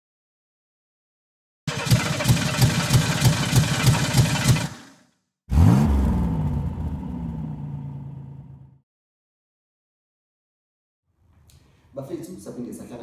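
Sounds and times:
starter motor cranking: 1.7 - 5.0
car engine revving and idling: 5.5 - 8.8.

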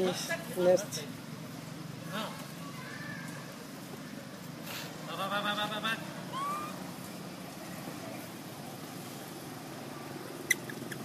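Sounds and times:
baby monkey squeak: 10.5 - 11.0.

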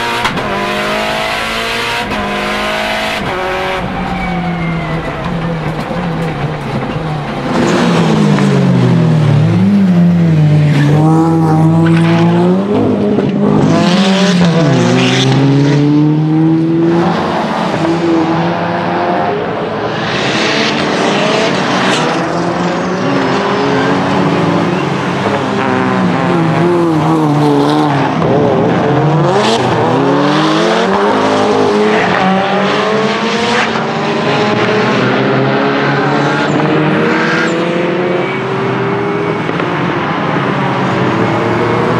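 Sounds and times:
car engine revving hard: 0.0 - 4.8.

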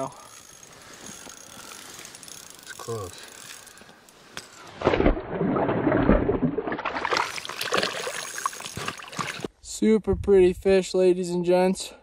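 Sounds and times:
water splashing and sloshing: 4.5 - 9.5.

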